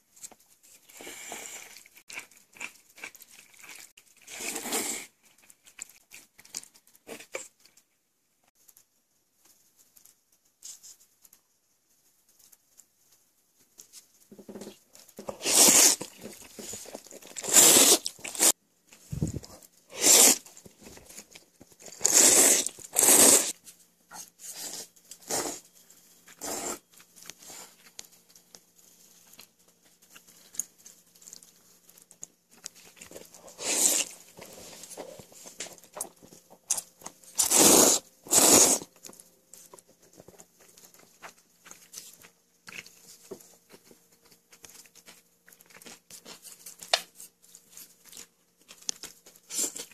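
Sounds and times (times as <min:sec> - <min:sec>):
person slurping noodles: 0:04.2 - 0:05.2, 0:15.3 - 0:16.1, 0:17.2 - 0:18.6, 0:19.2 - 0:20.4, 0:21.9 - 0:23.6, 0:24.6 - 0:25.6, 0:26.4 - 0:26.9, 0:33.5 - 0:34.2, 0:37.4 - 0:38.9.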